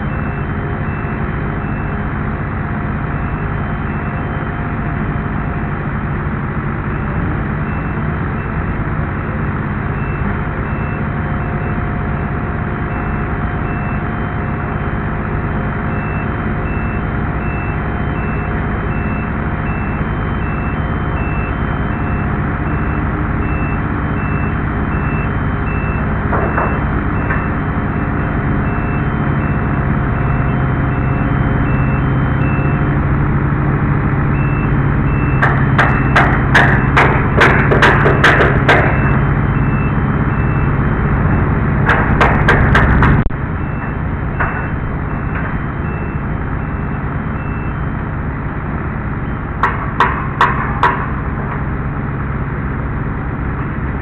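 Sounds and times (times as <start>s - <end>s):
lift engine running: 0.0s - 54.0s
sharp clicks and knocks: 35.3s - 39.4s, 41.8s - 45.6s, 49.6s - 51.6s.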